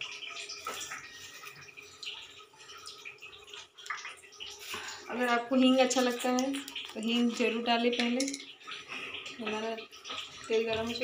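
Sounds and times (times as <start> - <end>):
steel utensils clicking: 8.0 - 8.5.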